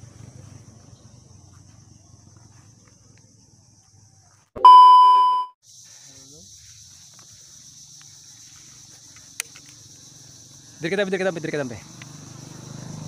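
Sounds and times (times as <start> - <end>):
loud steady electronic beep: 4.6 - 5.6.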